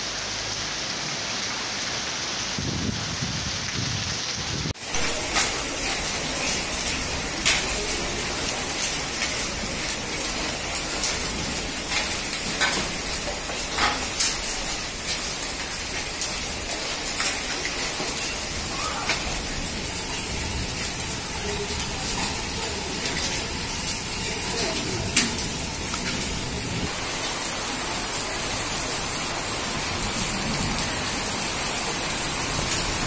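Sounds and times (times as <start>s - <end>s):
rain on wet paving: 0.0s - 33.0s
hailstones hitting ground: 1.2s - 33.0s.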